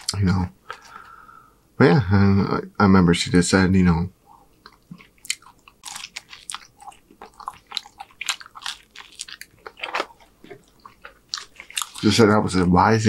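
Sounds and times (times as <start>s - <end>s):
person chewing pizza: 4.3s - 12.3s.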